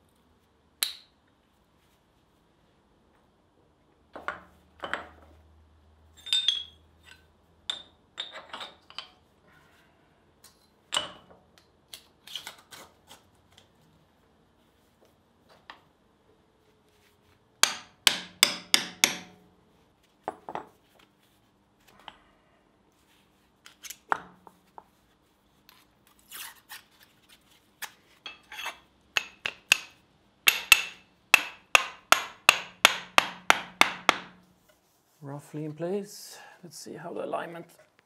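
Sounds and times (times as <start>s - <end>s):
hammer striking steel: 17.6s - 19.4s, 30.5s - 34.4s.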